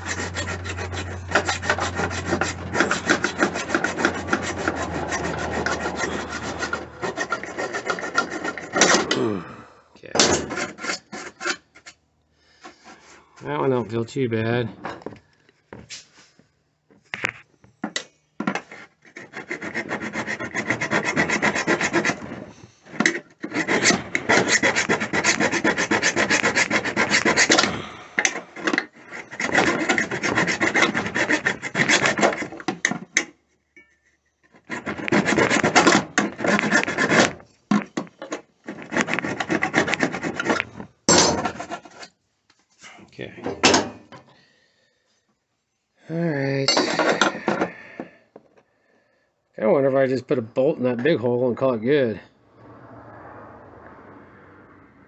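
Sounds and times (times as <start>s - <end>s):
hand tool rasping plastic: 0.0s - 9.3s, 10.2s - 13.2s, 17.9s - 33.4s, 34.4s - 42.2s, 46.7s - 48.2s.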